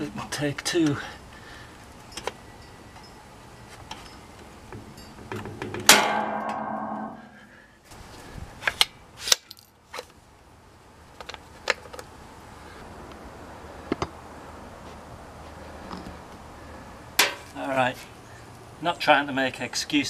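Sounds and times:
nail gun bang: 0:05.8 - 0:07.1
metallic ringing: 0:05.9 - 0:07.6.

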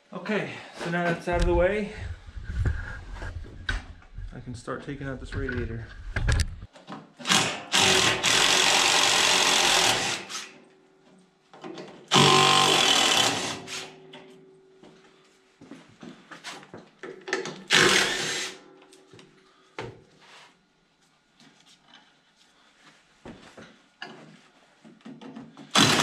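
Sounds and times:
handheld power tool running: 0:07.2 - 0:10.5, 0:12.1 - 0:14.0, 0:17.7 - 0:18.6, 0:25.7 - 0:26.0.

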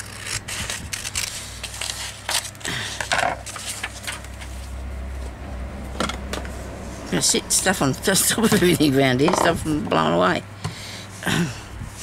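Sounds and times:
paper rustling and scraping: 0:00.0 - 0:05.4
steady low rumble: 0:00.5 - 0:10.6.

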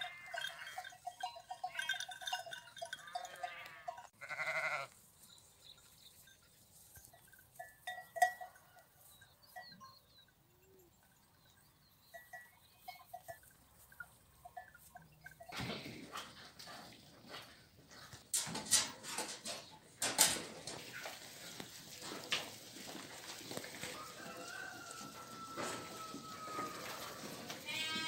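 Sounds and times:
clinking sheep bells: 0:00.0 - 0:15.7, 0:21.5 - 0:28.0
sheep bleating: 0:03.2 - 0:05.0, 0:26.4 - 0:28.0.

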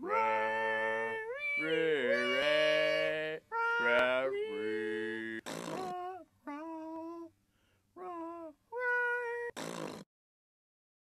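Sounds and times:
person humming sliding notes: 0:00.0 - 0:05.2.

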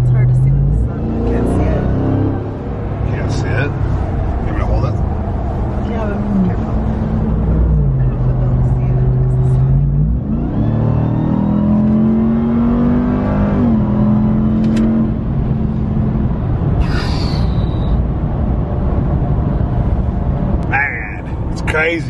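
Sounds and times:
engine accelerating hard: 0:00.0 - 0:16.9.

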